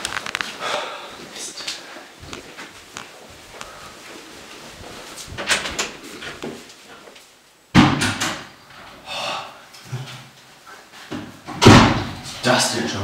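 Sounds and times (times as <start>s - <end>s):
door banging: 7.8s - 8.6s, 11.5s - 12.3s.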